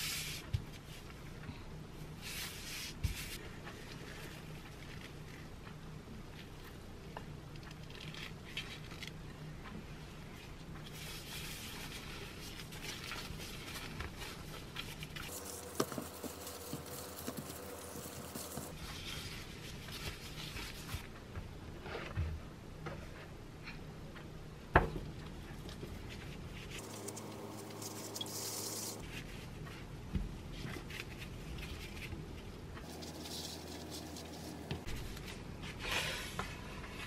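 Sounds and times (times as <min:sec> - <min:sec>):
dough squishing and patting: 0:06.3 - 0:22.2.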